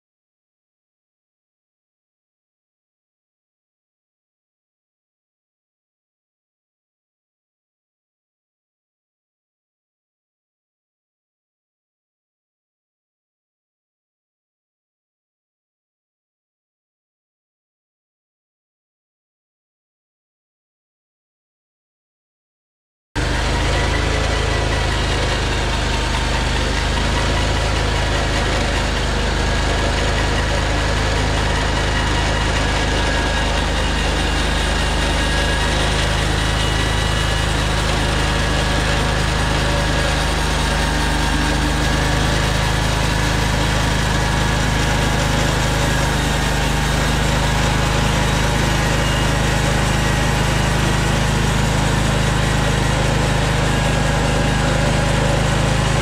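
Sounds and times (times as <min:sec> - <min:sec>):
sawmill engine running: 0:23.2 - 0:56.0.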